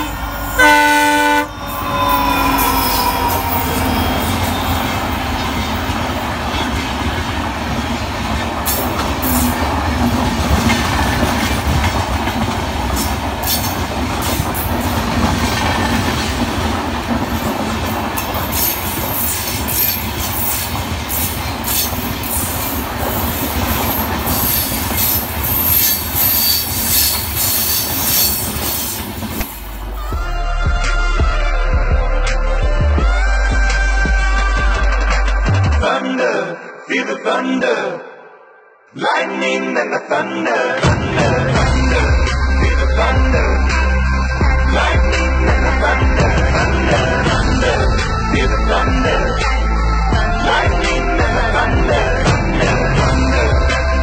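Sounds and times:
high-pitched wheel squeal: 0:00.0 - 0:06.8, 0:23.3 - 0:29.5
train wheels rumbling on rails: 0:00.0 - 0:30.2, 0:40.9 - 0:49.6.

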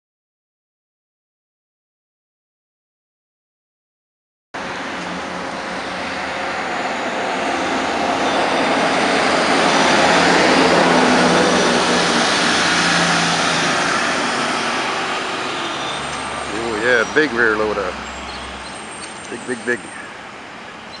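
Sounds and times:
heavy trucks driving past: 0:04.6 - 0:21.0.

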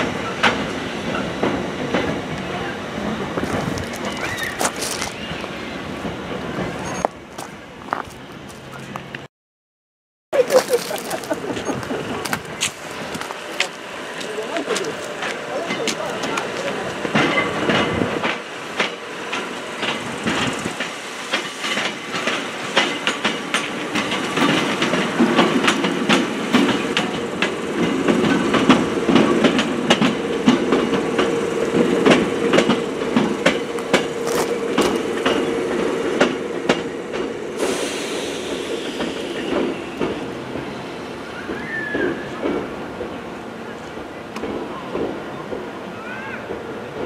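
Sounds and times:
wheels clicking over rail joints: 0:10.4 - 0:37.4
electric train hum: 0:10.4 - 0:47.0.

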